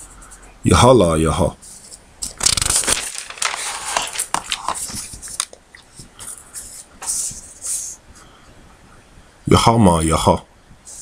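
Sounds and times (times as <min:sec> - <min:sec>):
paper rustling and crinkling: 0:01.7 - 0:07.4.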